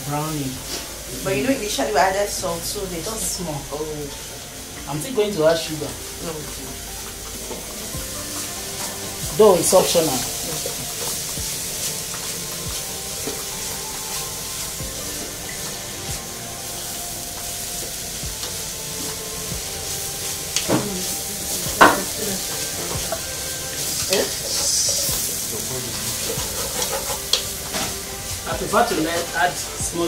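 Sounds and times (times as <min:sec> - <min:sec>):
filling sizzling in a pan: 0:00.0 - 0:30.0
utensil knocking against pan: 0:21.7 - 0:22.2.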